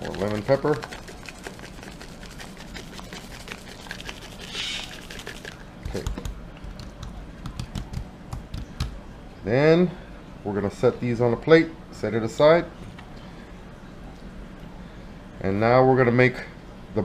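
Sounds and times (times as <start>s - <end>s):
seasoning shaker ticking: 0.0s - 8.7s
hands patting fish on wooden board: 5.8s - 9.0s.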